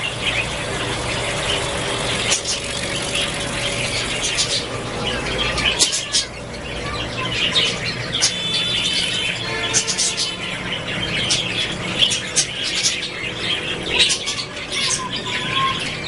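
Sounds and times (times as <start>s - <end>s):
budgerigars chattering: 0.0s - 16.0s
wings fluttering: 0.4s - 4.7s.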